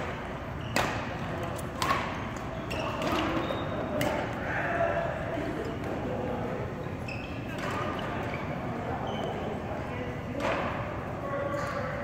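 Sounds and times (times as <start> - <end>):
racket hitting shuttlecock: 0.7 - 4.2
faint voices: 1.0 - 12.0.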